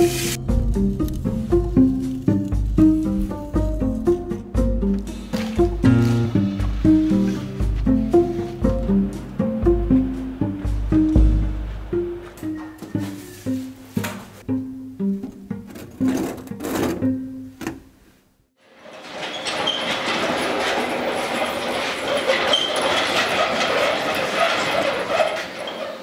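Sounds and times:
high squeaks: 0:12.4 - 0:13.8, 0:18.8 - 0:26.0
wheeled cart rattling: 0:18.7 - 0:26.0.

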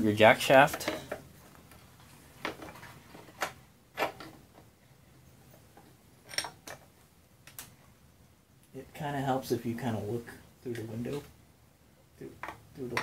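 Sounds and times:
metal tool clinking on metal: 0:06.3 - 0:06.6.

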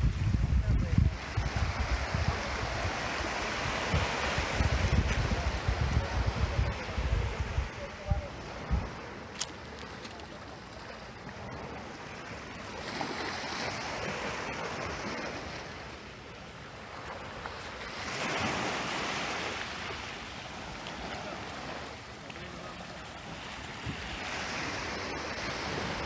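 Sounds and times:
small waves washing on beach: 0:00.0 - 0:26.0.

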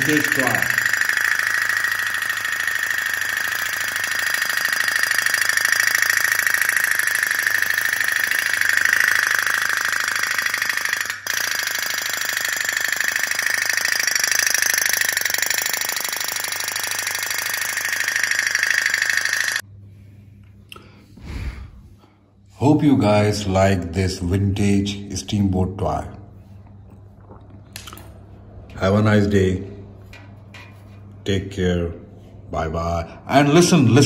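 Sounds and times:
toy steam boat putt-putt rattle: 0:00.0 - 0:19.6.

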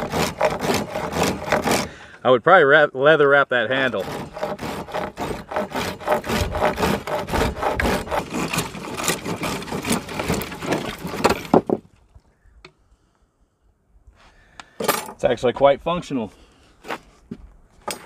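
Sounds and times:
hand saw cutting dry wood: 0:00.0 - 0:02.2, 0:03.6 - 0:11.8.

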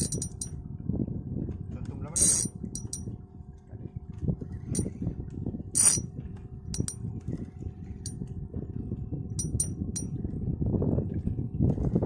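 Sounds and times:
light metallic clinks: 0:00.0 - 0:00.6, 0:02.2 - 0:03.1, 0:04.7 - 0:04.9, 0:06.8 - 0:07.0, 0:09.4 - 0:10.1
boat engine rumble: 0:00.0 - 0:12.0.

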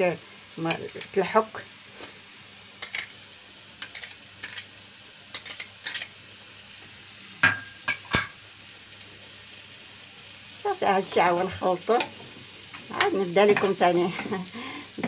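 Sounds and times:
faint sizzle: 0:00.0 - 0:15.0
metal spoon scraping frying pan: 0:02.8 - 0:03.2, 0:03.8 - 0:04.7, 0:05.3 - 0:06.2, 0:13.0 - 0:14.4.

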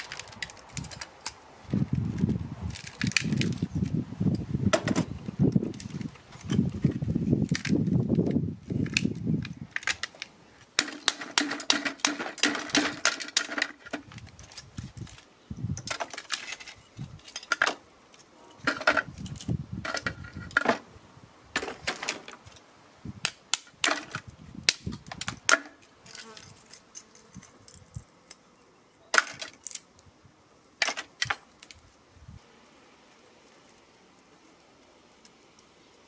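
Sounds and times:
pliers cracking plastic: 0:02.1 - 0:03.7, 0:07.4 - 0:15.2.

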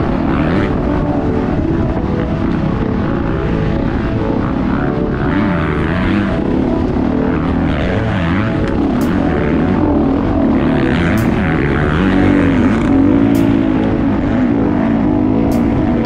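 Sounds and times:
off-road motorcycle engines revving: 0:00.0 - 0:16.0.

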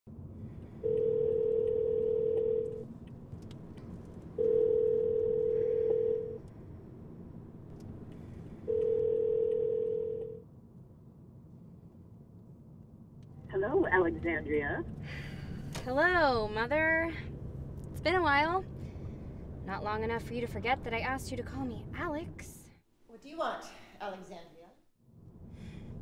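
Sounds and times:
low hum of car cabin: 0:00.3 - 0:22.4
telephone ringback tone: 0:00.8 - 0:02.8, 0:04.4 - 0:06.4, 0:08.7 - 0:10.4.

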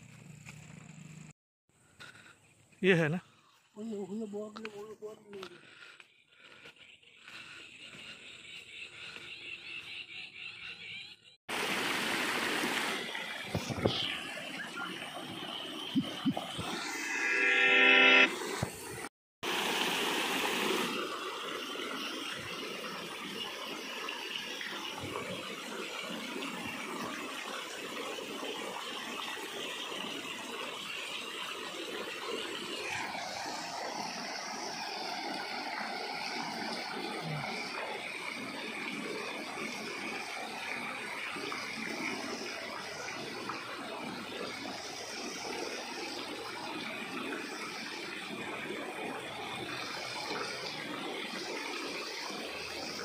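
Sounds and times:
fountain jets splashing into basin: 0:11.5 - 0:16.8, 0:18.4 - 0:53.0.

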